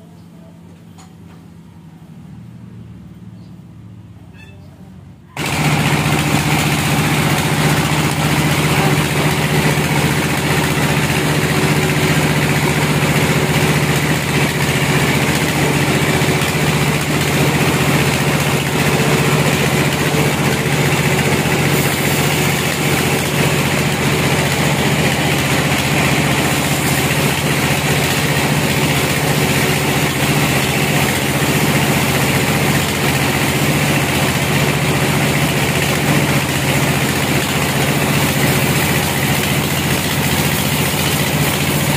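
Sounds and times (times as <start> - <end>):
band sawmill droning: 5.4 - 41.9.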